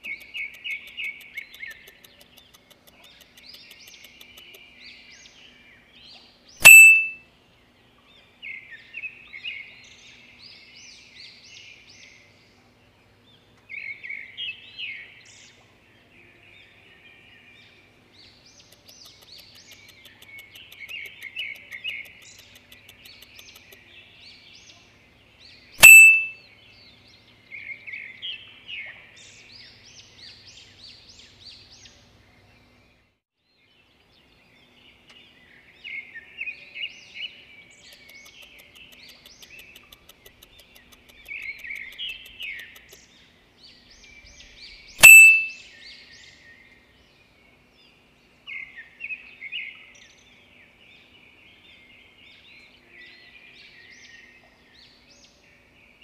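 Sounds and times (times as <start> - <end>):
small birds chirping: 0.0 - 56.0
sharp ding: 6.6 - 7.2, 25.8 - 26.4, 45.0 - 45.5.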